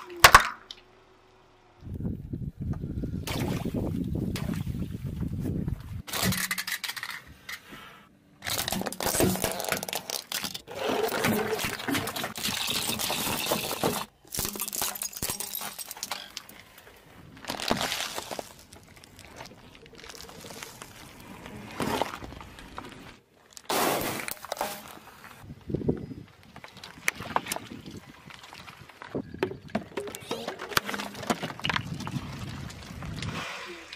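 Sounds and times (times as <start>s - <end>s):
tyre crushing plastic tubes: 6.1s - 7.2s, 8.4s - 16.7s, 17.3s - 25.4s.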